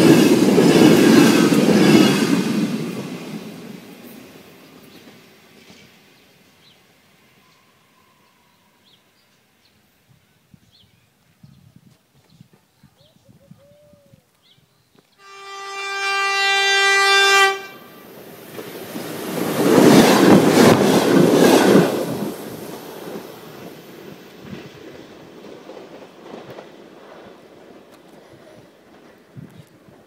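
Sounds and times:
train horn blast: 0:15.2 - 0:18.1.

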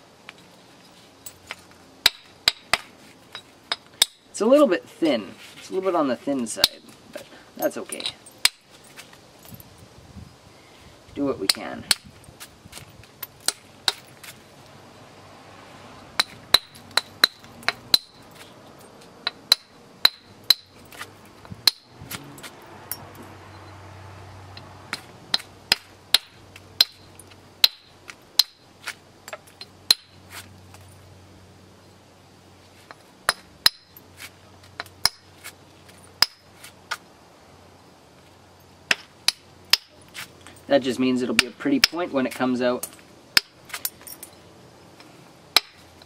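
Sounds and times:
stone knapping strikes: 0:24.9 - 0:30.2, 0:34.8 - 0:35.3, 0:36.2 - 0:36.5, 0:38.9 - 0:40.0, 0:45.6 - 0:45.8.

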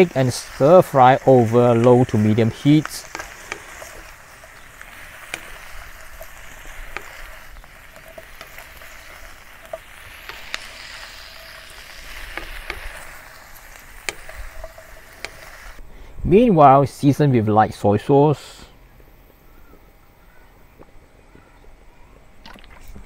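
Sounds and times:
vegetables sizzling in a wok: 0:00.0 - 0:15.8
wooden spatula clicking on pan: 0:02.8 - 0:15.8.

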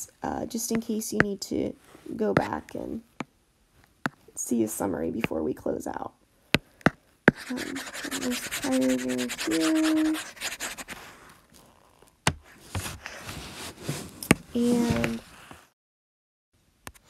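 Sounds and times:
stylus scratching across screen: 0:07.3 - 0:11.1.

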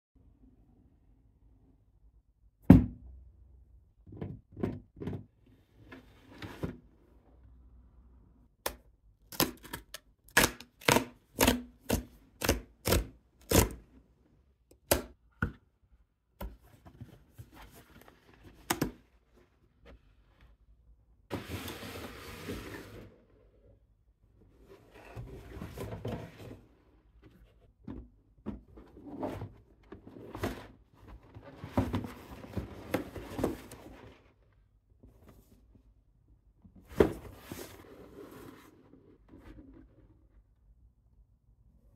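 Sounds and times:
cardboard scraping and sliding: 0:21.3 - 0:23.5, 0:24.5 - 0:27.6, 0:28.8 - 0:34.4, 0:36.8 - 0:40.2.

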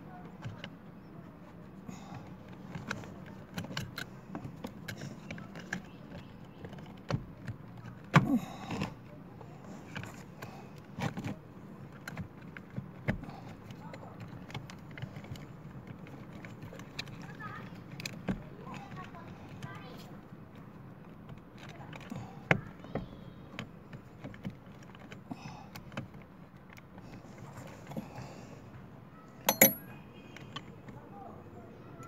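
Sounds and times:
metallic clicks of battery clamps: 0:29.5 - 0:29.9.

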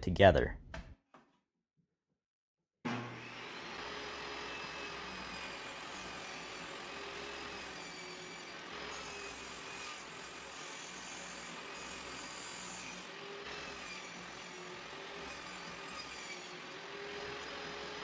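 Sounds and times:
table saw cutting board: 0:02.9 - 0:18.0.

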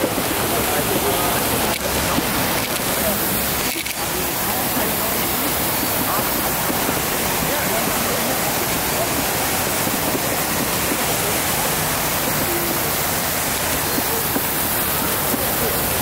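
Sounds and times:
waterfall pouring into pool: 0:00.0 - 0:16.0.

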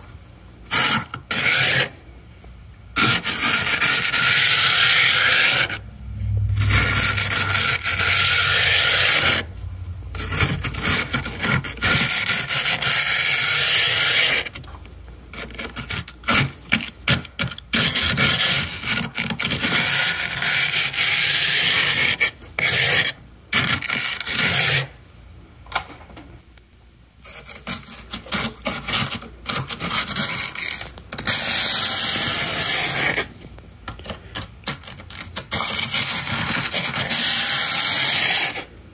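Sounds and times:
plastic scraper scraping frost: 0:00.7 - 0:02.0, 0:03.0 - 0:05.8, 0:06.6 - 0:09.5, 0:10.1 - 0:14.6, 0:15.3 - 0:25.0, 0:27.2 - 0:33.4, 0:34.0 - 0:38.7.

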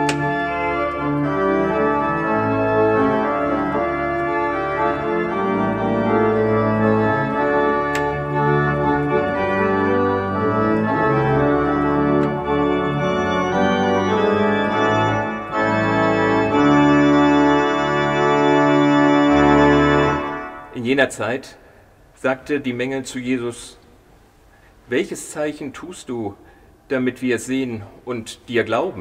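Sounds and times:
church organ chords: 0:00.0 - 0:21.4.

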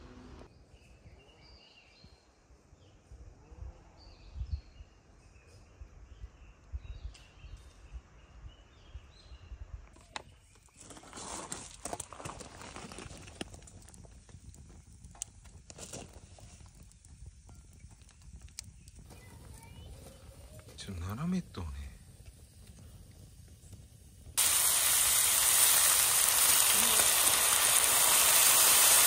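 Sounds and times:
faint birdsong: 0:00.4 - 0:11.2, 0:16.4 - 0:24.1
wood fire crackling and popping: 0:11.8 - 0:29.0.

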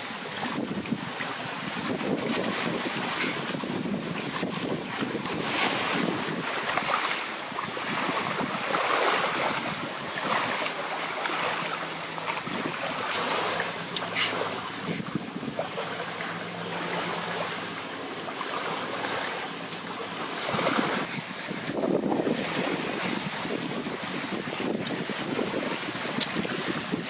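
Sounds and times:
waves washing on shore: 0:00.0 - 0:27.0
wind buffeting microphone: 0:00.2 - 0:17.8, 0:19.0 - 0:27.0.

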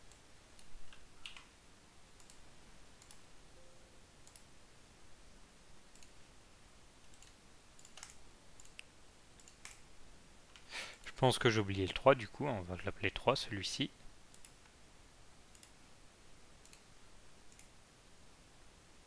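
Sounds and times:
computer mouse clicking: 0:00.0 - 0:01.5, 0:02.2 - 0:02.4, 0:03.0 - 0:03.3, 0:04.2 - 0:04.5, 0:05.9 - 0:06.2, 0:07.0 - 0:09.8, 0:14.3 - 0:14.8, 0:15.5 - 0:15.8, 0:16.6 - 0:16.9, 0:17.5 - 0:17.7.

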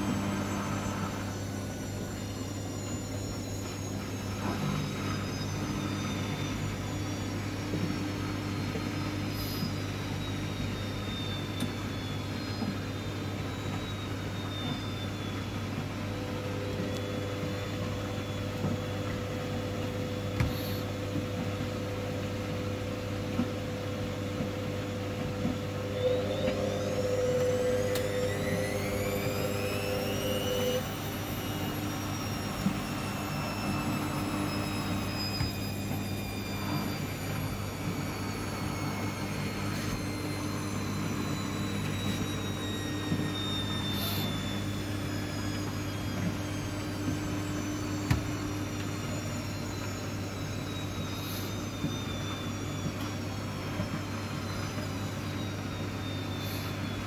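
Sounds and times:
washing machine motor whine: 0:00.0 - 0:57.0
steady drone: 0:25.8 - 0:57.0.

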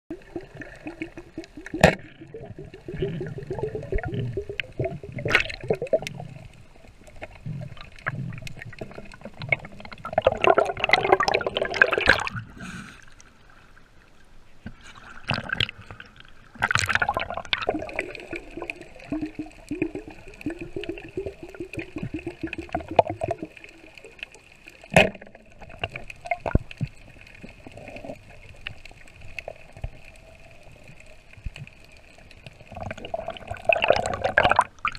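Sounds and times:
water sloshing and rushing: 0:00.1 - 0:14.0.

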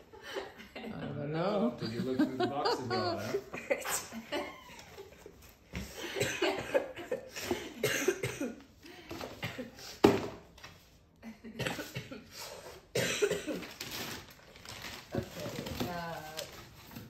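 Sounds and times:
person coughing: 0:06.0 - 0:08.6, 0:11.6 - 0:12.3, 0:12.9 - 0:13.7.

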